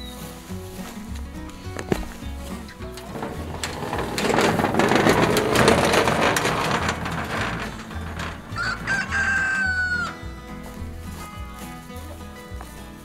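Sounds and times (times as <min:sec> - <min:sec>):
rough rustling and scraping: 0:00.0 - 0:13.0
chickens clucking: 0:07.0 - 0:13.0
rooster crowing: 0:08.5 - 0:10.4.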